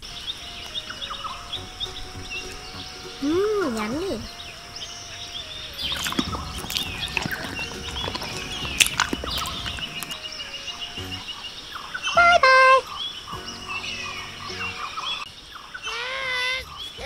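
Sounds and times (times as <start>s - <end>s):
birds chirping: 0.0s - 17.0s
monkey eating wet clicks: 5.8s - 10.2s.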